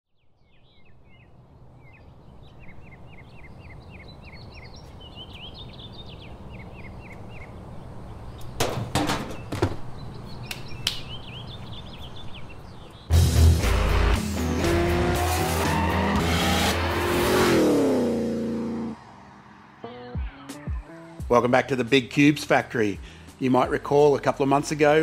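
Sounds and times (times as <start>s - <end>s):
small birds chirping: 0.1s - 13.2s
clattering knocks: 8.5s - 9.9s.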